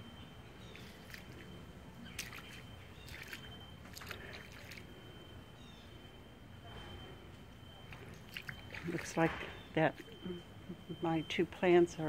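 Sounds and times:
faint steady high tone: 0:00.0 - 0:12.0
footsteps sloshing through water: 0:00.5 - 0:05.5, 0:06.7 - 0:10.6.

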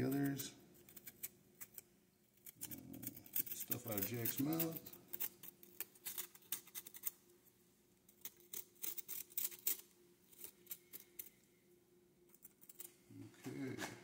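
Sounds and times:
knife scraping pumpkin: 0:02.4 - 0:07.1.

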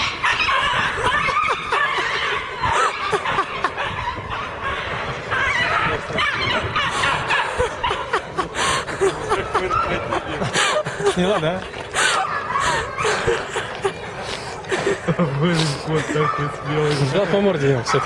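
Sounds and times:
people laughing: 0:00.0 - 0:18.0
people talking: 0:05.6 - 0:18.0.

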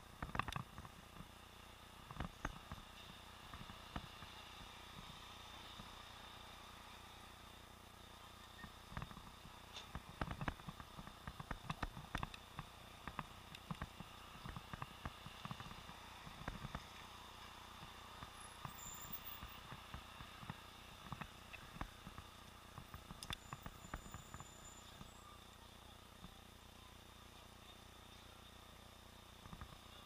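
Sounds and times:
steady low hiss: 0:00.0 - 0:30.0
muffled clicks and knocks: 0:00.2 - 0:01.3, 0:08.9 - 0:16.9.

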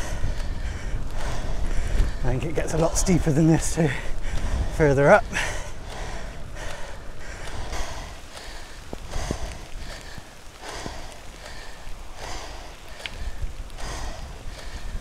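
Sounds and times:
person breathing hard: 0:00.0 - 0:03.1, 0:03.7 - 0:15.0
wind on microphone: 0:00.0 - 0:15.0.

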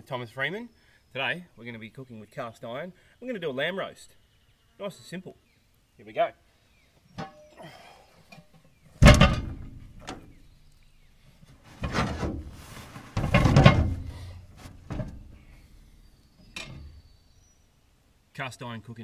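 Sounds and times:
bag rustling: 0:11.7 - 0:14.9.

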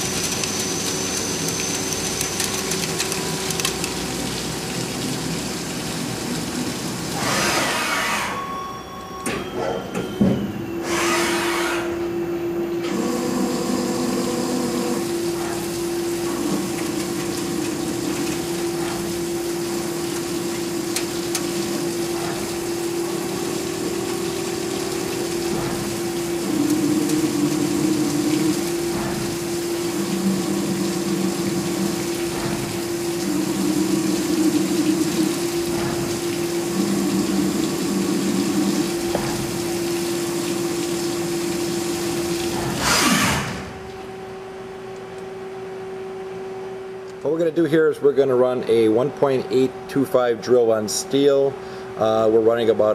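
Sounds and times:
coolant spraying and splashing: 0:00.0 - 0:08.3, 0:12.9 - 0:43.9
lathe machine tone: 0:07.2 - 0:15.0
lathe cutting low tones: 0:10.8 - 0:15.4.

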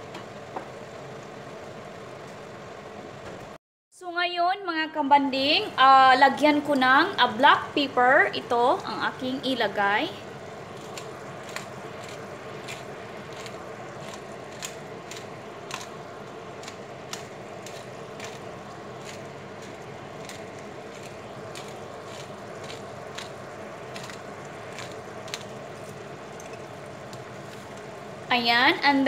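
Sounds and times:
chicken sizzling in a frying pan: 0:00.0 - 0:03.3, 0:05.9 - 0:29.0
pepper mill grinding: 0:10.5 - 0:28.0.

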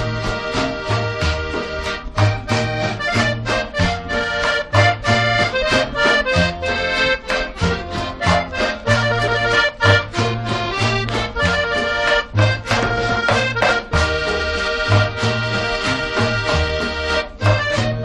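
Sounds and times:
accordion melody: 0:00.0 - 0:18.0
bass line: 0:00.0 - 0:18.0
quick percussion beat: 0:11.0 - 0:17.9.

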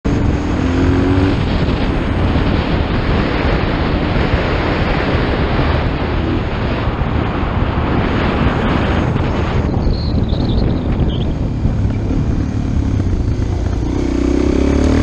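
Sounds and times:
wind buffeting microphone: 0:00.1 - 0:15.0
faint motorcycle engine: 0:09.8 - 0:15.0.

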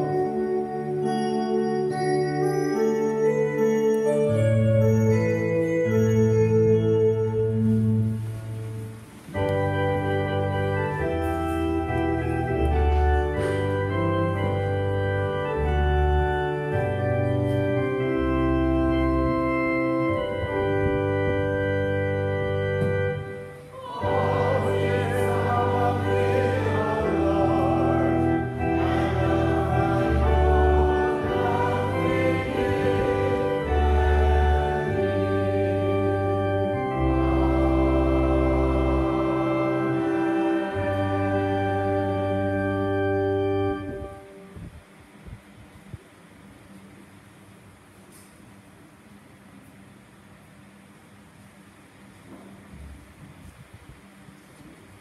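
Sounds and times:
organ playing a hymn: 0:00.0 - 0:44.9
voices singing: 0:23.7 - 0:36.3, 0:36.9 - 0:42.2.

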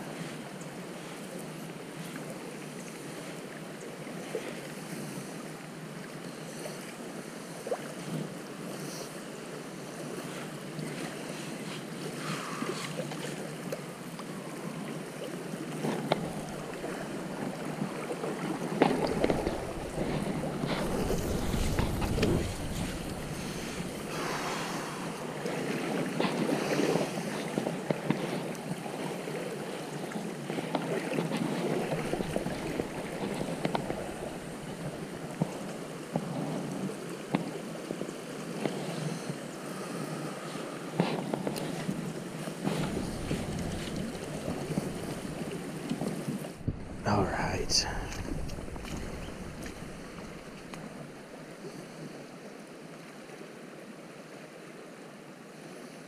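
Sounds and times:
river water rushing: 0:09.3 - 0:55.8
wind buffeting microphone: 0:16.0 - 0:27.7, 0:31.4 - 0:35.9, 0:41.7 - 0:47.1, 0:48.0 - 0:51.2.

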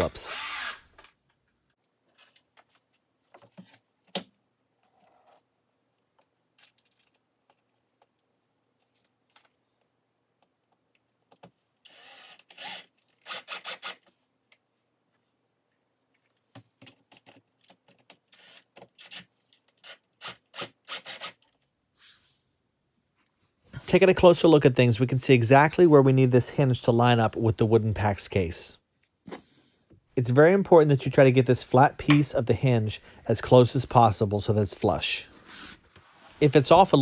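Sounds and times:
cordless drill driving screws: 0:00.3 - 0:01.0, 0:11.9 - 0:14.0.

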